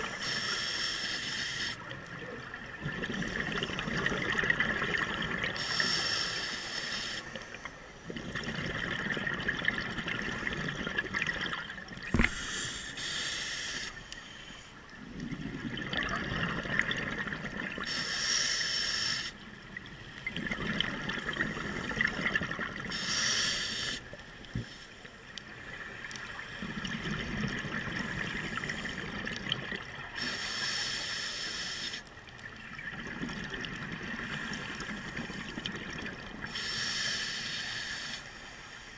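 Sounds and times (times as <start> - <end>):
hissing regulator inhale: 0.0 - 1.8, 5.6 - 8.0, 12.1 - 14.8, 17.8 - 19.4, 22.9 - 26.1, 30.2 - 32.1, 36.4 - 38.9
bubbling exhaled air: 1.6 - 6.2, 8.0 - 13.9, 15.0 - 18.0, 20.2 - 24.1.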